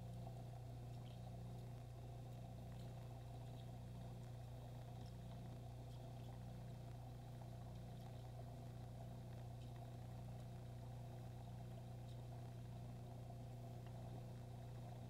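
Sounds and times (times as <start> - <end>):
aquarium pump humming: 0.0 - 15.0
faint ticks: 0.0 - 15.0.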